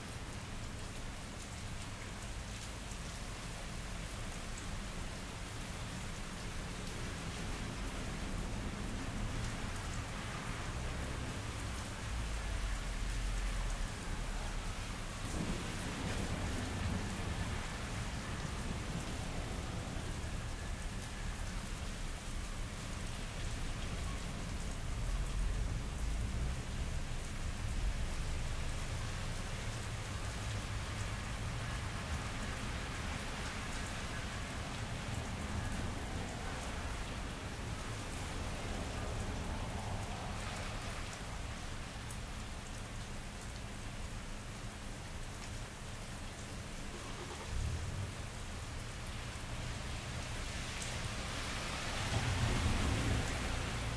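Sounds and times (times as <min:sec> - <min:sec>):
rain falling on pavement: 0:00.0 - 0:53.9.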